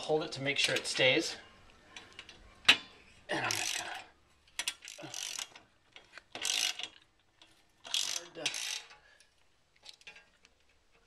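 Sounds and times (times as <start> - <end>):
socket ratchet clicking: 4.5 - 7.1, 7.8 - 9.0.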